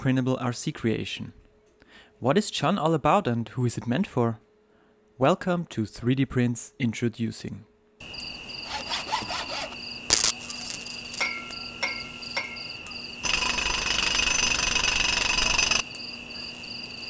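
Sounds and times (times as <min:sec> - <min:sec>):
crickets chirping: 0:08.0 - 0:17.0
loud rasping noise: 0:08.6 - 0:10.3.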